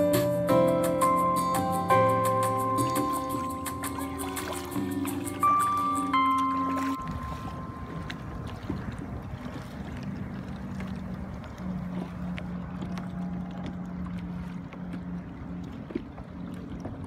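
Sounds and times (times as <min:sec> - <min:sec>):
water rumbling: 0:00.0 - 0:17.0
wind on microphone: 0:06.7 - 0:13.8.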